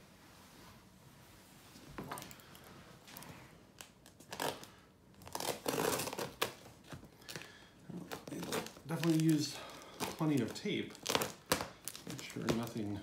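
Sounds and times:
packing tape ripping off box: 0:03.8 - 0:12.8.

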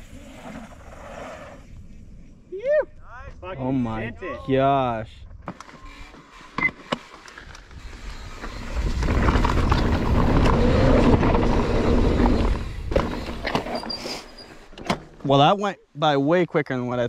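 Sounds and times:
tyre and wind rush: 0:07.6 - 0:14.7
bike knocks and rattles: 0:09.0 - 0:13.8.

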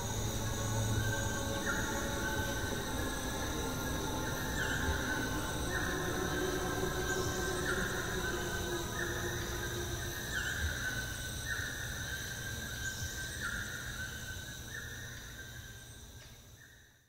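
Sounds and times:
high-pitched insect trilling: 0:00.0 - 0:16.0.

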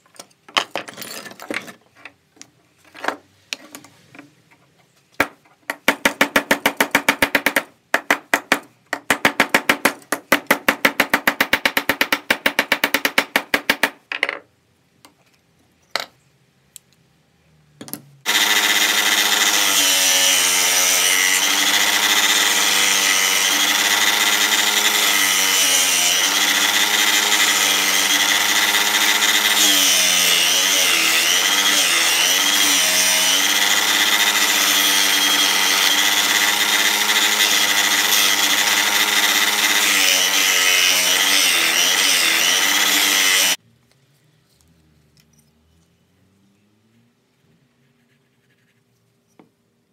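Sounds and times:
power tool motor running: 0:18.3 - 0:43.6.

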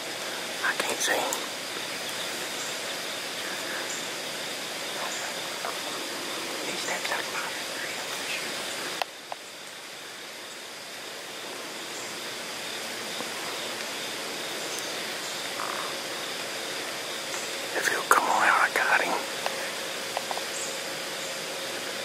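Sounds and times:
rushing outdoor background noise: 0:00.0 - 0:22.0.

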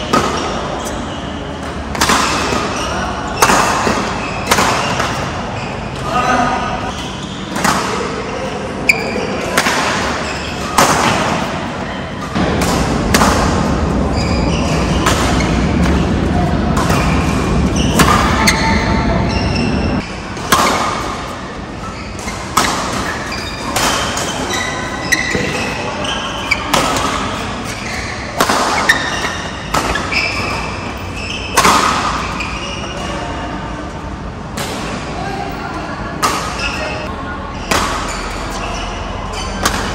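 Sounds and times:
voices chattering: 0:00.0 - 0:12.6, 0:13.5 - 0:39.9
rackets striking shuttlecock: 0:39.4 - 0:39.9.

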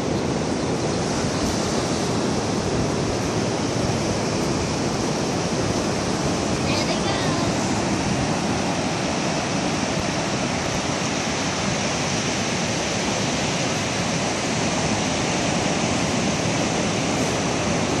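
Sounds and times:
surf breaking on beach: 0:00.0 - 0:18.0.

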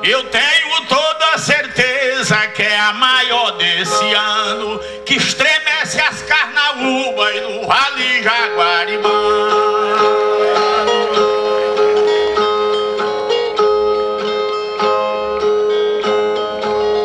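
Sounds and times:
man singing: 0:00.0 - 0:11.2
strummed violas: 0:06.8 - 0:17.0.

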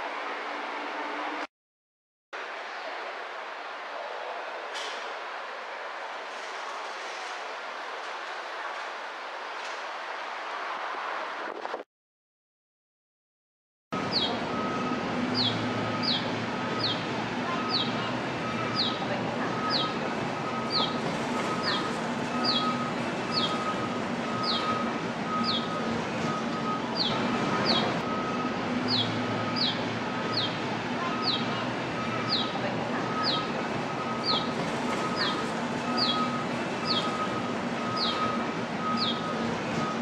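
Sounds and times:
bird chirping: 0:15.4 - 0:17.0, 0:21.6 - 0:23.7, 0:24.4 - 0:25.8, 0:27.0 - 0:27.9, 0:34.2 - 0:34.5, 0:35.1 - 0:37.2, 0:37.9 - 0:39.3.

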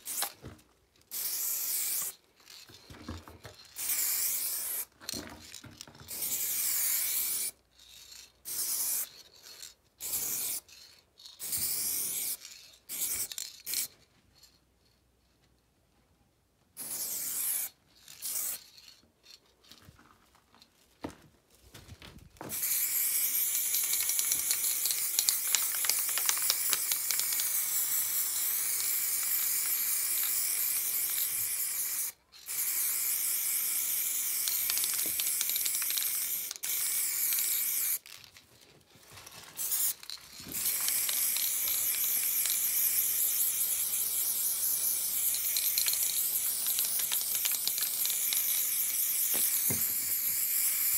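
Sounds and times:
spray paint can hissing: 0:00.0 - 0:00.4, 0:01.1 - 0:02.8, 0:03.6 - 0:04.9, 0:06.0 - 0:13.9, 0:16.8 - 0:18.9, 0:22.5 - 0:38.2, 0:39.6 - 0:50.9.

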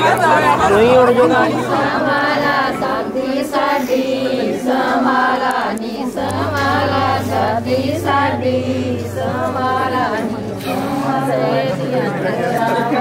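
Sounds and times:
group of voices singing: 0:00.0 - 0:13.0
steady low hum: 0:00.0 - 0:13.0.

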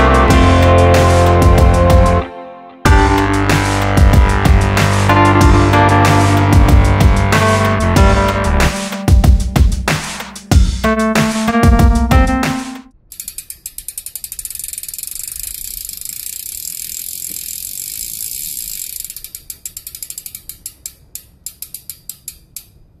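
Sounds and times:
music: 0:00.0 - 0:12.9
bicycle freehub ratcheting: 0:13.0 - 0:23.0.

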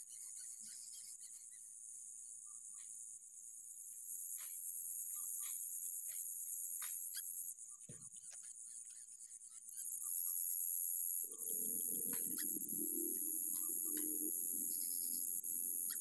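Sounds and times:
insects buzzing: 0:10.0 - 0:16.0.

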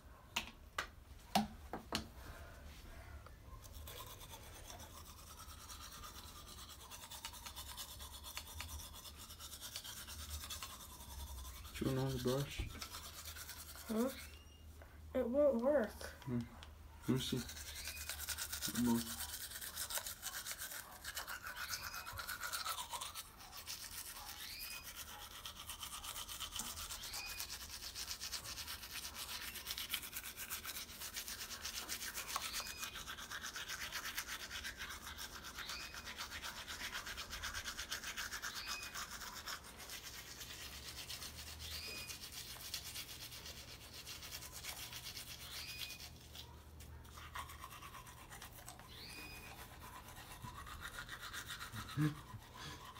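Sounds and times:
electric toothbrush buzzing: 0:17.1 - 0:46.2, 0:47.3 - 0:52.9.

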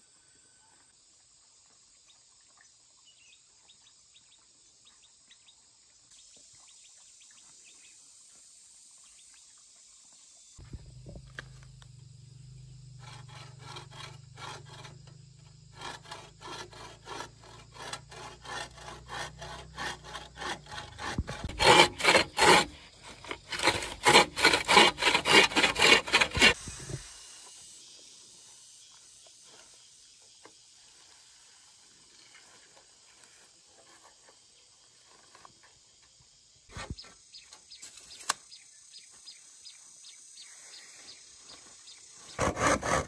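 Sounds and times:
saw rasping through bamboo: 0:12.6 - 0:27.0, 0:42.2 - 0:43.0.

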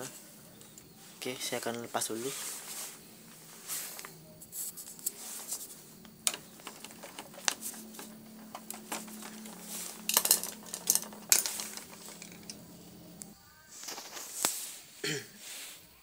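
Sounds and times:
faint steady hum: 0:00.0 - 0:16.0
plastic and metal parts clicking: 0:06.1 - 0:13.3.

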